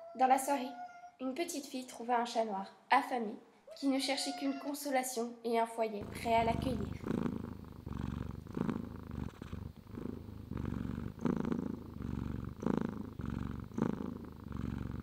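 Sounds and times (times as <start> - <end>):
cat purring: 6.0 - 15.0.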